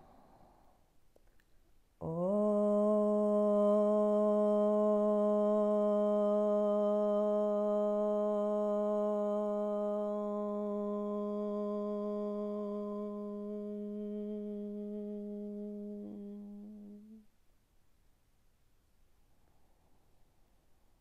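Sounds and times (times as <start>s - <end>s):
woman chanting: 2.0s - 17.3s.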